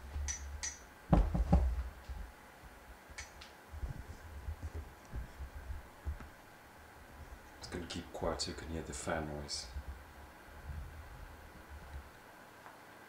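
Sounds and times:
light cooling fan whirring: 0.0 - 13.0
microphone handling bumps: 1.1 - 2.8, 3.7 - 6.5, 9.7 - 12.1.

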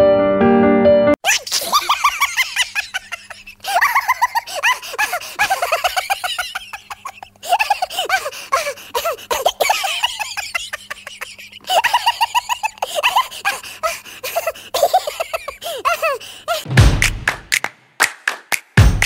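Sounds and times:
woman giggling: 1.3 - 16.7.

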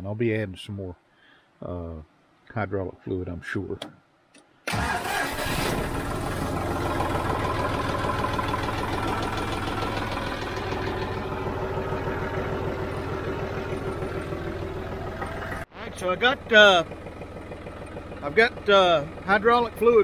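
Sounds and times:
tractor diesel engine idling: 4.7 - 20.0.

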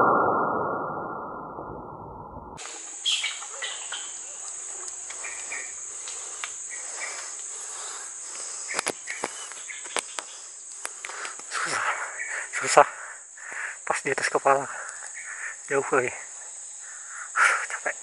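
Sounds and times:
muffled rush: 0.0 - 9.6
forest insects droning: 2.5 - 18.0
sharp clicks: 8.7 - 11.5.

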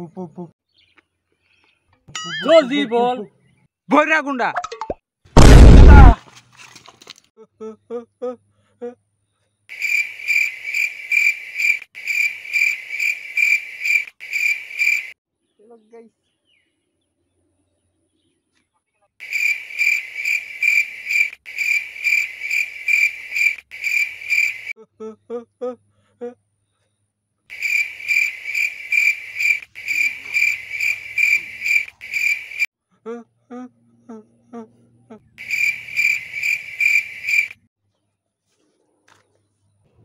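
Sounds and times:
cricket chirping: 9.7 - 15.2, 19.2 - 24.7, 27.5 - 32.7, 35.4 - 37.6.

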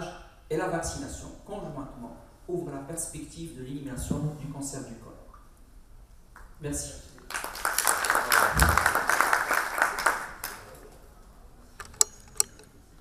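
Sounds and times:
audience applauding: 7.3 - 10.9.

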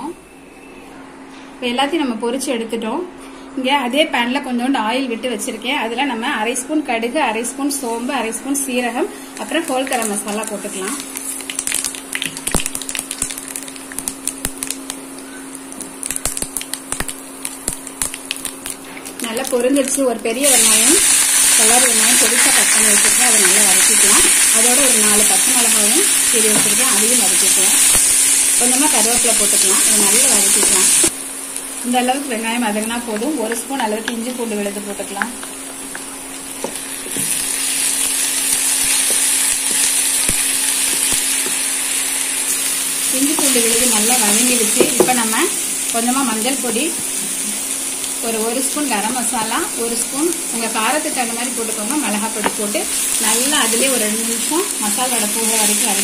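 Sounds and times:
steady low hum: 0.0 - 56.0
spices sizzling in hot oil: 7.7 - 56.0
mustard seeds popping: 9.8 - 20.0, 33.0 - 41.6.

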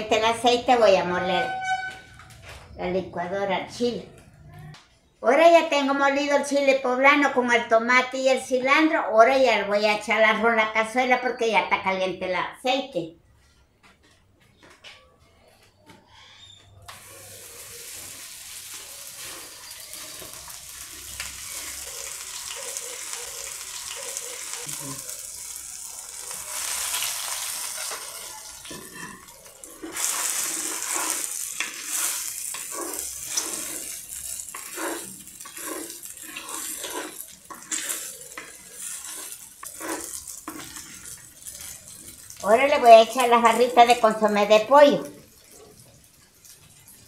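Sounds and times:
wooden spoon scraping: 16.9 - 22.8, 26.2 - 42.2
rice sizzling in hot oil: 16.9 - 47.0.

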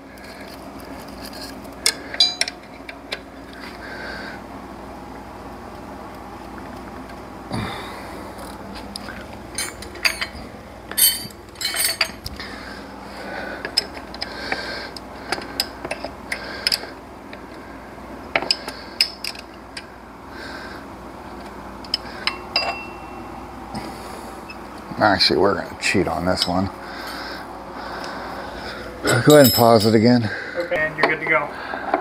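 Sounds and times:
metal hand tools clinking: 9.6 - 10.4, 11.0 - 12.2, 29.0 - 30.1.

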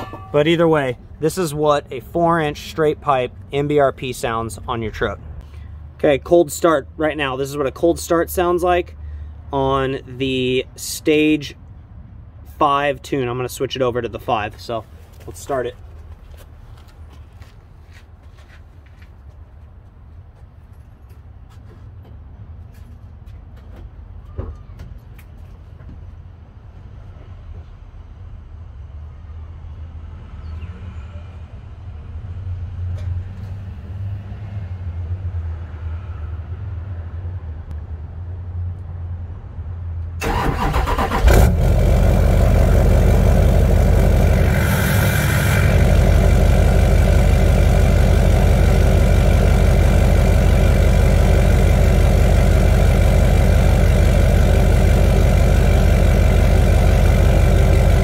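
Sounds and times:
diesel engine cranking: 40.2 - 58.0
diesel engine idling: 40.2 - 58.0.

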